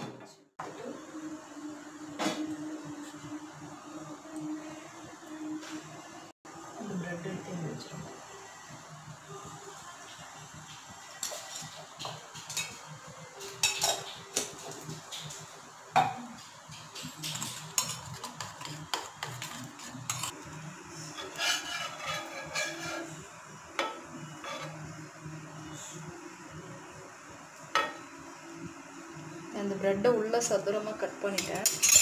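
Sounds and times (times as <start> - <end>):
utensils clinking against a pan: 11.2 - 14.7, 16.7 - 20.4, 21.2 - 23.2, 31.2 - 32.0
spatula scraping a pan: 17.2 - 25.0.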